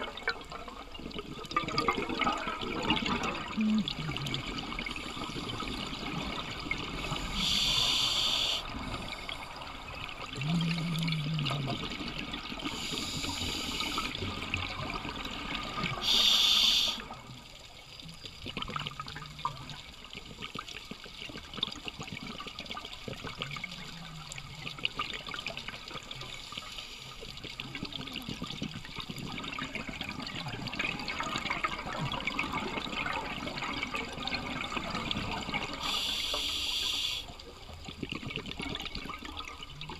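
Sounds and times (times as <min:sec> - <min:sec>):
exhaled bubbles through regulator: 0:00.0 - 0:39.9
underwater hiss: 0:06.6 - 0:09.7, 0:12.6 - 0:14.5, 0:15.6 - 0:17.2, 0:26.1 - 0:27.5, 0:35.6 - 0:37.4.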